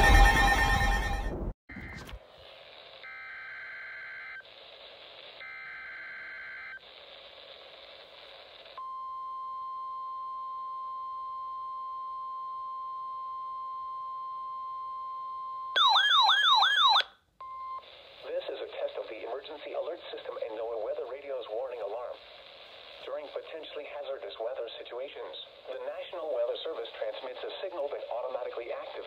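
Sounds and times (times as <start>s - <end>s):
radio static: 6.8s - 8.8s, 17.8s - 29.0s
loud warbling alert siren: 15.8s - 17.1s.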